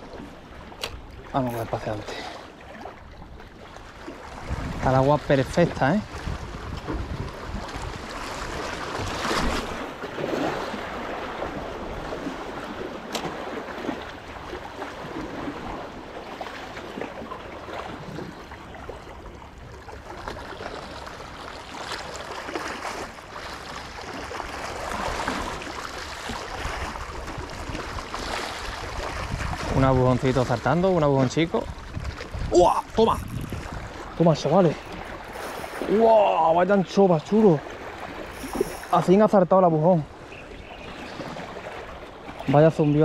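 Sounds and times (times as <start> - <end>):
wind buffeting microphone: 4.3 - 9.9, 26.5 - 36.0.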